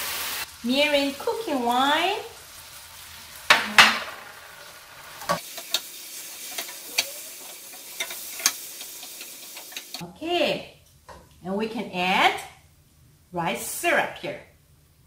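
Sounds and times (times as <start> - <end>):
liquid sizzling in a hot pan: 0.0 - 10.0
spatula stirring food: 5.2 - 10.0.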